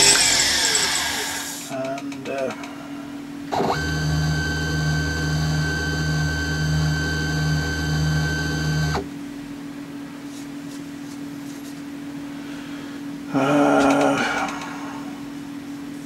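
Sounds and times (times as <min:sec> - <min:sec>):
mill motors whining: 0:00.0 - 0:01.8, 0:03.5 - 0:09.1
faint electrical hum: 0:00.0 - 0:16.0.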